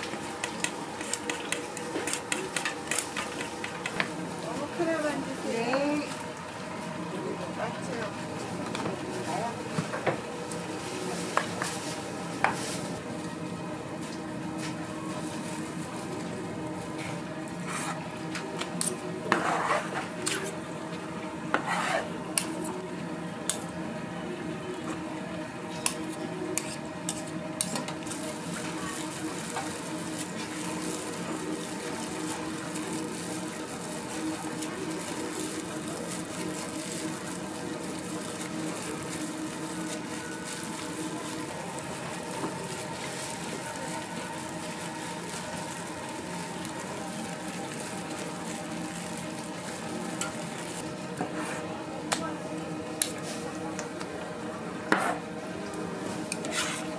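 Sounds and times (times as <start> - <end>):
food deep-frying in oil: 24.8 - 51.0.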